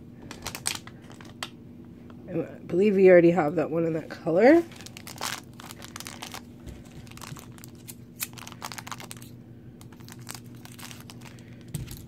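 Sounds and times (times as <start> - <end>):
foil bag crackling: 0.2 - 1.5, 4.4 - 12.0
scissors cutting wrapper: 4.7 - 12.0.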